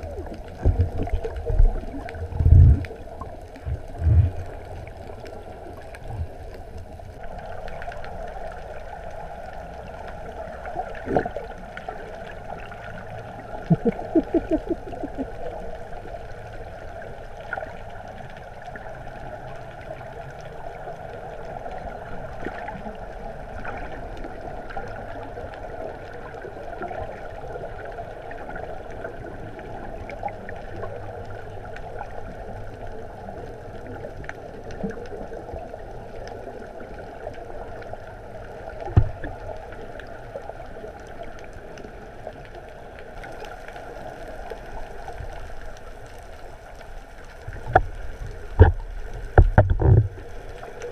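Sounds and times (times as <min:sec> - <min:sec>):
underwater water noise: 0:00.0 - 0:50.9.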